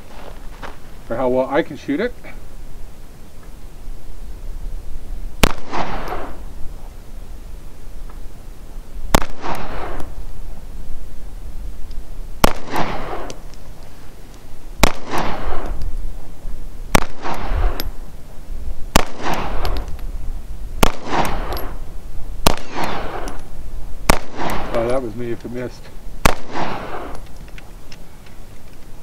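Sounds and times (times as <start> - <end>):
pistol shots with echo: 5.4 - 6.4, 9.1 - 10.1, 12.4 - 13.4, 14.8 - 15.8, 16.9 - 17.9, 18.9 - 19.9, 20.8 - 21.8, 22.4 - 23.4, 24.1 - 25.0, 26.2 - 27.2.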